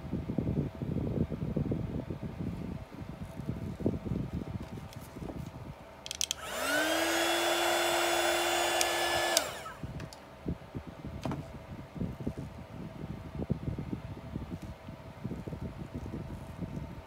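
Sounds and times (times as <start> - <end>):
handling rustles: 3.2 - 6.4
electric blower whining: 6.1 - 10.1.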